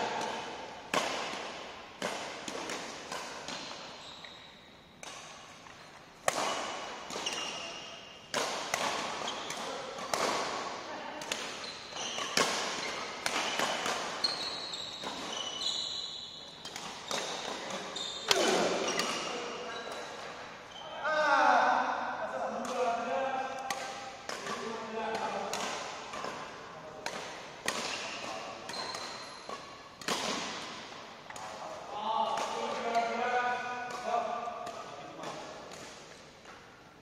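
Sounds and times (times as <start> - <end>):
rackets hitting shuttlecock: 0.0 - 4.0, 4.9 - 20.5, 22.5 - 36.8
shoe squeaks on court floor: 3.9 - 4.7, 7.1 - 8.2, 11.5 - 21.0, 27.8 - 29.7.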